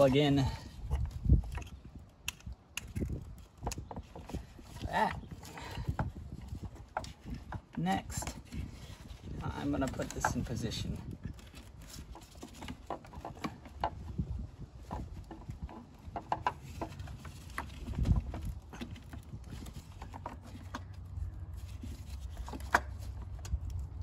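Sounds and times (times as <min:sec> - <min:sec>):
metal and plastic parts clicking: 0:00.5 - 0:14.0.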